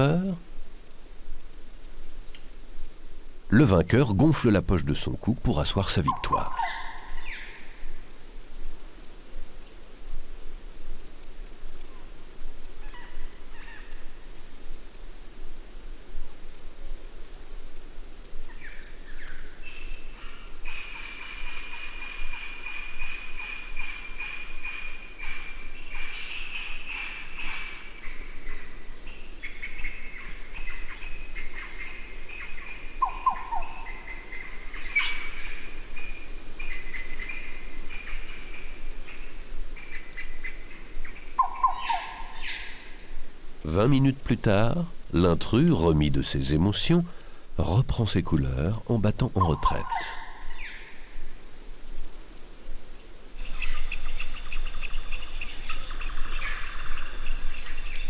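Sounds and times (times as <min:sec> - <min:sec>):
lower rasping insect trill: 0:00.0 - 0:58.0
high fast-pulsing insect trill: 0:48.2 - 0:58.0.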